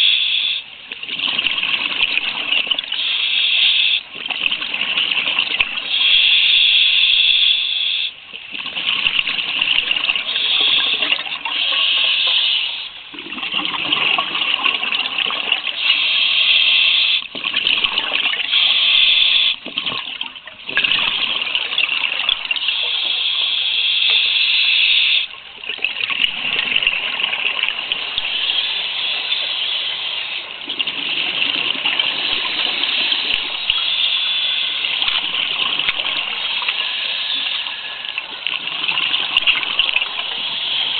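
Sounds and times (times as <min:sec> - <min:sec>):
diver breathing through regulator: 0:02.9 - 0:04.0, 0:05.8 - 0:08.2, 0:10.1 - 0:13.0, 0:15.7 - 0:17.3, 0:18.4 - 0:19.6, 0:22.5 - 0:25.3, 0:32.1 - 0:38.2, 0:39.5 - 0:40.9.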